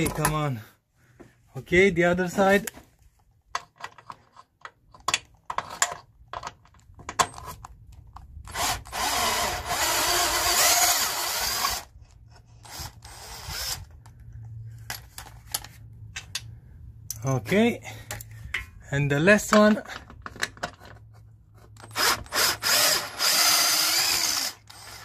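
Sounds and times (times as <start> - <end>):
power tool spinning: 8.5 - 13.9, 21.8 - 25.0.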